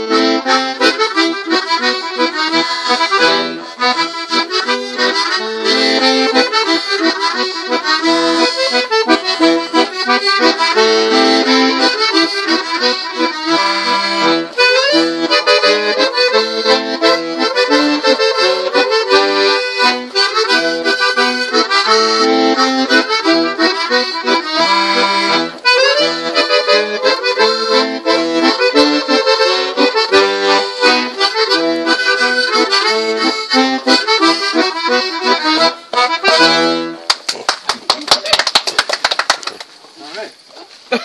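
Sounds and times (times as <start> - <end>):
harmonica playing chords: 0.0 - 37.1.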